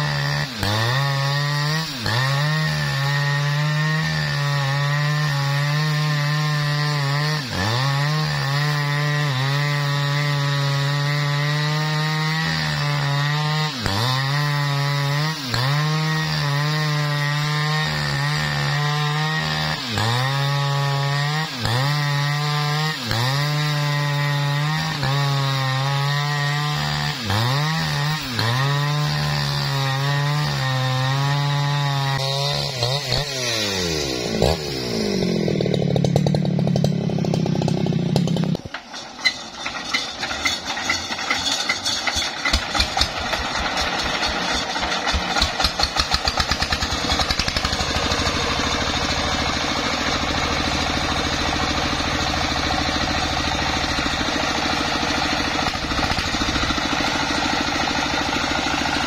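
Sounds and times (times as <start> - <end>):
chainsaw cutting through log: 0.0 - 59.0.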